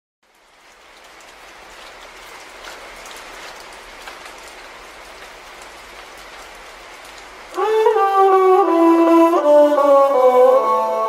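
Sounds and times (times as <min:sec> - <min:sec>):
rain drop taps: 0:00.2 - 0:08.0
steady rain falling: 0:00.2 - 0:11.0.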